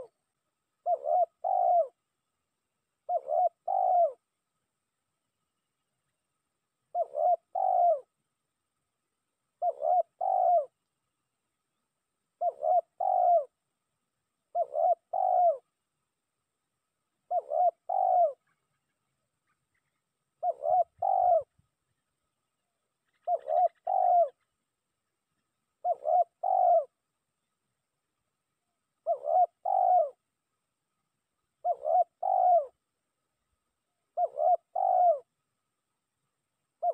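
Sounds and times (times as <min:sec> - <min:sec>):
dove cooing: 0:00.0 - 0:02.1, 0:03.0 - 0:04.3, 0:06.9 - 0:08.2, 0:09.6 - 0:10.8, 0:12.4 - 0:13.6, 0:14.5 - 0:15.7, 0:17.2 - 0:22.1, 0:23.0 - 0:24.5, 0:25.4 - 0:27.0, 0:29.0 - 0:30.3, 0:31.6 - 0:32.8, 0:34.1 - 0:35.4.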